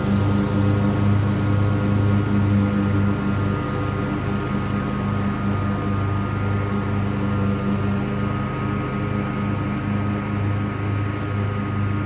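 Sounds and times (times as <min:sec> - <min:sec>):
mower engine humming: 0:00.0 - 0:12.0.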